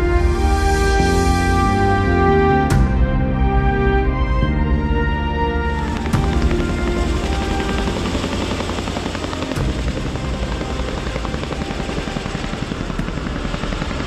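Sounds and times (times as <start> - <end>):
helicopter rotors chopping: 5.1 - 14.0.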